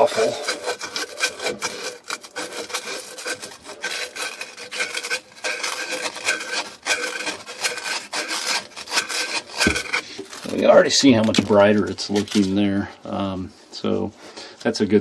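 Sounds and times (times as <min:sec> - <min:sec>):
emery cloth rasping on pipe: 0:00.0 - 0:10.9.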